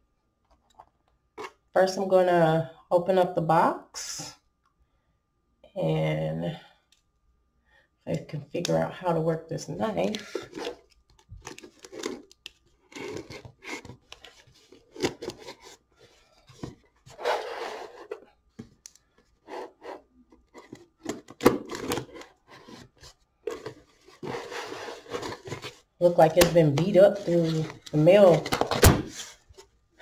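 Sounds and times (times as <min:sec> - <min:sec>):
knife scraping cardboard: 0:12.9 - 0:15.8, 0:17.1 - 0:18.3, 0:19.4 - 0:20.8, 0:21.7 - 0:25.8.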